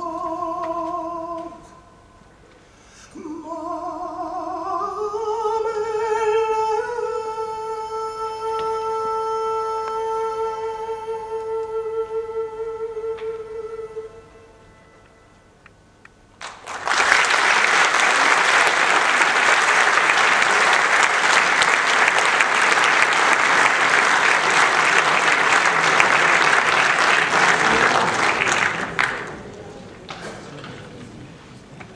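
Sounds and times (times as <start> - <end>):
audience applauding: 16.4 - 31.1.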